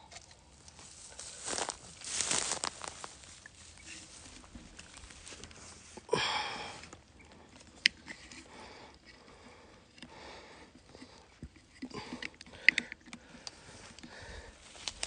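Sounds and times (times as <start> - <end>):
footsteps crunching dry grass: 0.2 - 7.0, 14.2 - 15.0.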